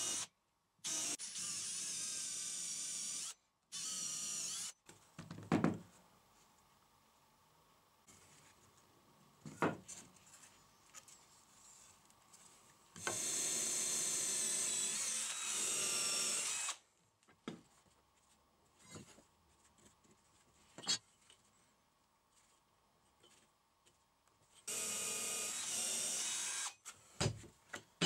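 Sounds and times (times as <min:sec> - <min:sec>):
cordless drill drilling through wood: 0:00.0 - 0:04.8, 0:13.0 - 0:16.8, 0:24.7 - 0:26.8.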